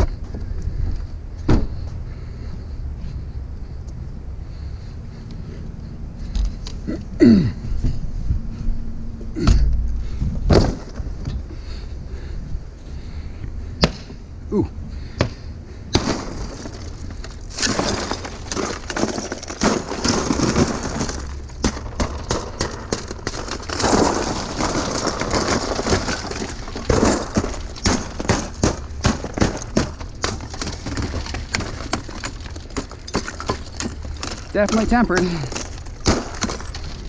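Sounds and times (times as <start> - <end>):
glass smashing and tinkling: 16.1 - 22.4, 23.2 - 37.0.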